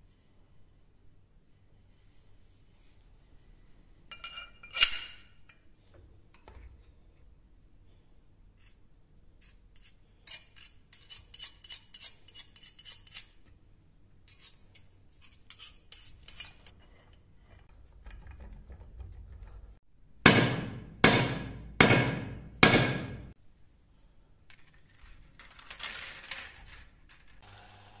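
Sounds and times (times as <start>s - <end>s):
palette knife scraping and clicking: 9.4s - 13.4s.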